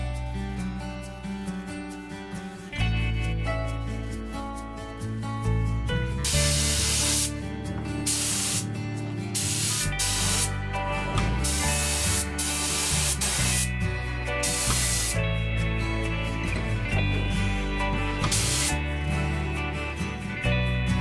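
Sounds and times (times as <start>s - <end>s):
paint spray gun hissing: 6.2s - 7.3s, 8.0s - 8.7s, 9.3s - 10.6s, 11.4s - 13.7s, 14.4s - 15.2s, 18.2s - 18.8s.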